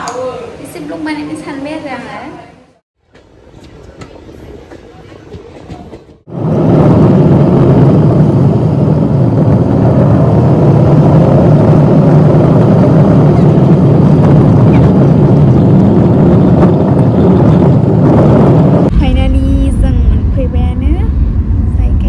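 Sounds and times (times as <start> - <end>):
car cabin road rumble: 6.3 - 22.0.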